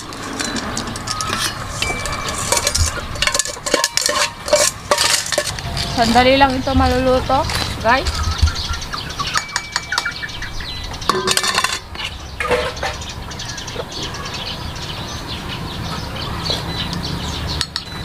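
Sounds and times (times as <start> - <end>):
metal utensils clinking on pot: 0.0 - 7.7, 9.3 - 10.2, 11.0 - 13.1
utensils clattering: 0.0 - 8.4, 9.2 - 13.2
chickens clucking: 0.0 - 18.0.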